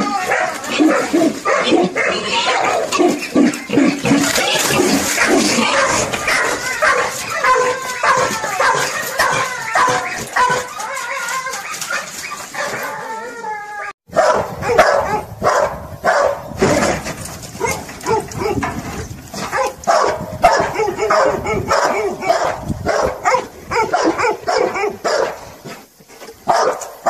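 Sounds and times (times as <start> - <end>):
dog yelping and whining: 0.0 - 14.0
dog barking sharply: 14.1 - 16.4, 19.5 - 25.3, 26.5 - 26.9.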